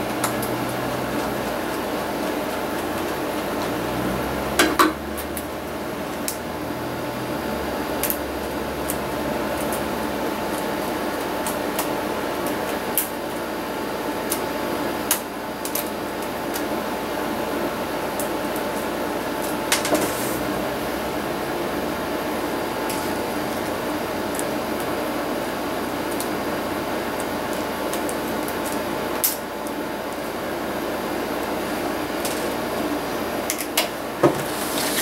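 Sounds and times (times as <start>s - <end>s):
steady background hum: 0.0s - 35.0s.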